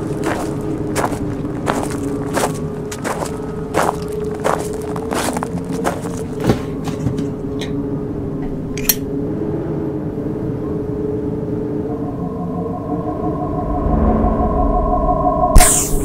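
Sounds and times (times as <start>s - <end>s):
footsteps crunching through rubbish: 0.0s - 7.5s
steady low drone: 7.3s - 16.0s
high synth tone: 11.6s - 16.0s.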